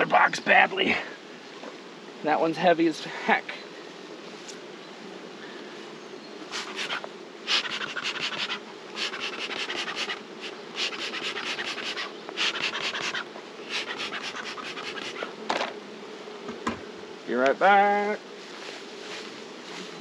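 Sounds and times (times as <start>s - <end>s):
honeybees humming: 0.0s - 20.0s
rasping bursts of smoker: 6.4s - 17.3s.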